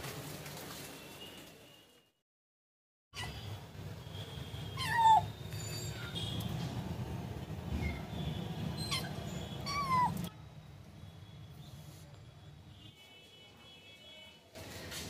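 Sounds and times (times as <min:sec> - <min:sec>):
kitten meowing: 0:04.8 - 0:05.3.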